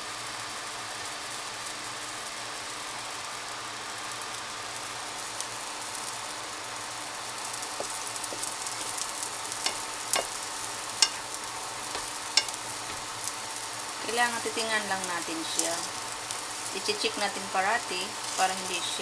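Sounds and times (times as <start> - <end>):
batter sizzling in a frying pan: 0.0 - 19.0
spatula clicking against pan: 11.0 - 11.2, 12.0 - 12.6.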